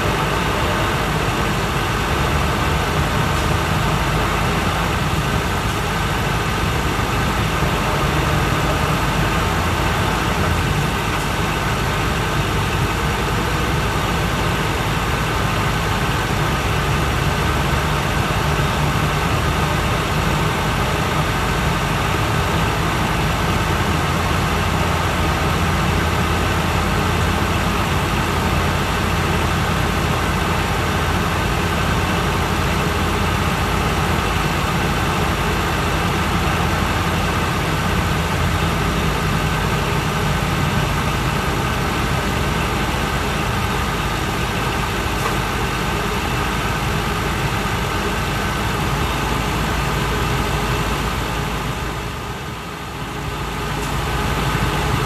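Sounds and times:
diesel engine drone: 0.0s - 55.0s
road and tyre noise: 0.0s - 55.0s.

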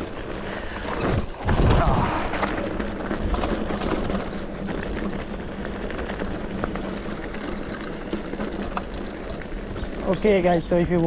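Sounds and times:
bike rattling: 0.0s - 11.0s
bike tyres crunching on gravel: 0.0s - 11.0s.

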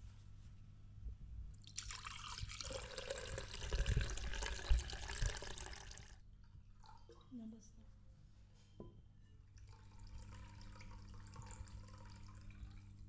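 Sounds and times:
liquid pouring into a bowl: 1.6s - 7.4s, 9.5s - 13.0s.

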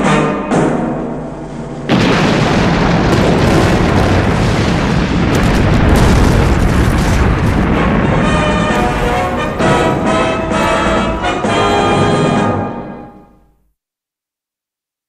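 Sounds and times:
deep rumble: 1.9s - 11.5s
explosion blast: 1.9s - 12.4s
orchestral music: 7.7s - 13.4s.

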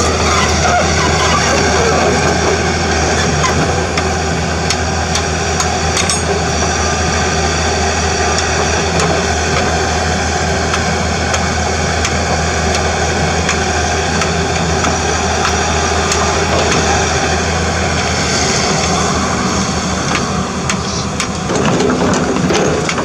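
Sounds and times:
excavator diesel engine drone: 0.0s - 23.0s
sharp clicks and knocks: 20.1s - 23.0s.

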